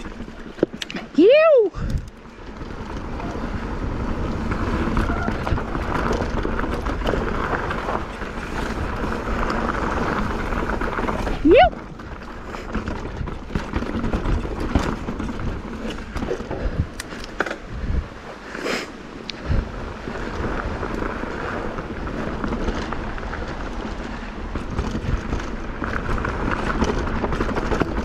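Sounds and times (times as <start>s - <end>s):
bike clicking and rattling: 0.0s - 28.0s
bike tyres on dirt trail: 0.0s - 28.0s
wind rumbling on microphone: 0.0s - 28.0s.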